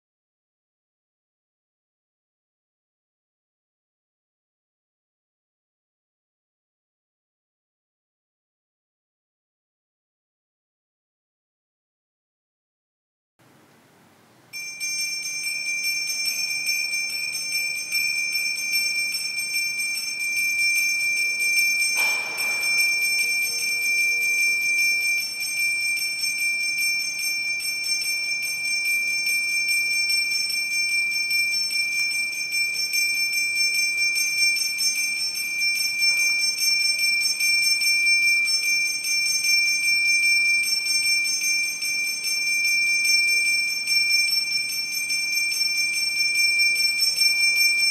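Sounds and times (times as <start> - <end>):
hand bell ringing rapidly: 14.6 - 47.9.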